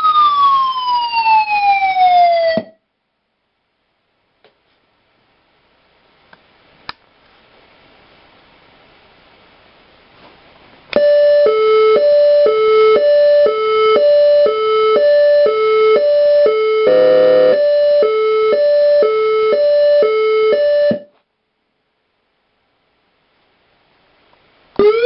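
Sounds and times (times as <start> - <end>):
two-tone electronic siren: 0.0 - 2.8, 11.0 - 21.1, 24.8 - 25.0
harsh siren buzzing tone: 11.0 - 21.1, 24.8 - 25.0.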